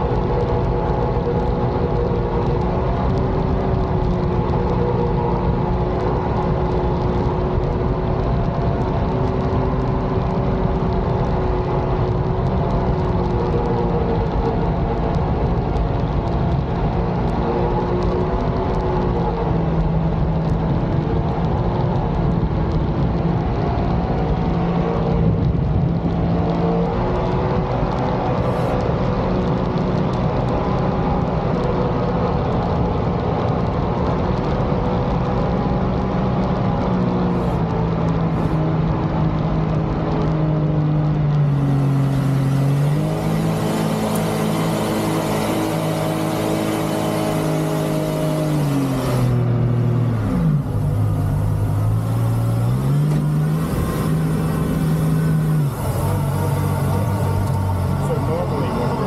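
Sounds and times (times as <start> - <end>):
jet boat engine running: 43.3 - 59.0.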